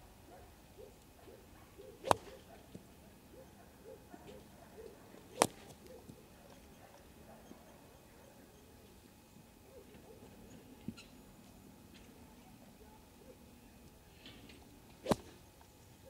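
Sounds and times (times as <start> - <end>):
golf club striking ball: 2.0 - 2.4, 15.0 - 15.3.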